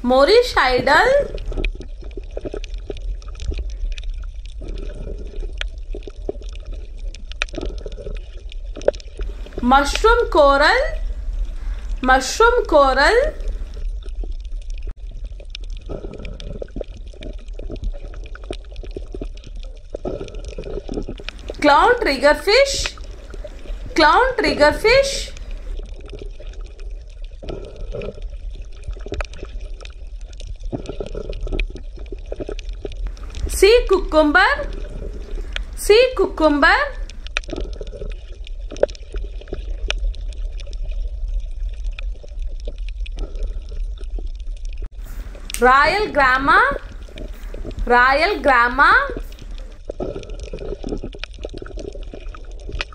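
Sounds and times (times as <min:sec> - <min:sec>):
water bubbling: 0:00.0 - 0:52.9
small clicks underwater: 0:01.2 - 0:12.0, 0:13.4 - 0:24.0, 0:25.0 - 0:36.2, 0:36.8 - 0:45.7, 0:46.6 - 0:52.9
steady low rumble: 0:09.2 - 0:14.2, 0:21.2 - 0:25.9, 0:33.0 - 0:37.4, 0:44.8 - 0:49.8.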